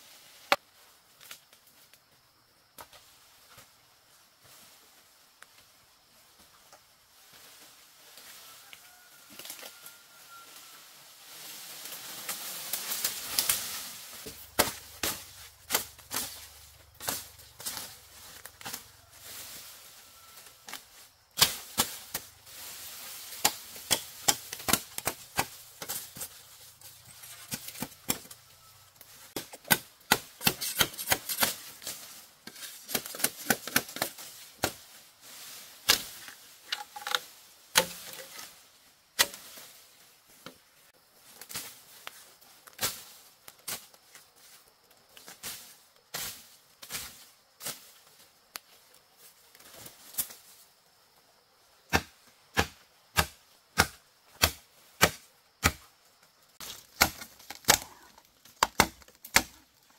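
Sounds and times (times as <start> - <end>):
blade chopping woody stalks: 12.7 - 18.8, 20.7 - 22.3, 23.2 - 26.4, 27.3 - 28.4, 29.0 - 34.9, 35.8 - 38.5, 39.2 - 39.6, 51.9 - 55.9, 56.6 - 59.6.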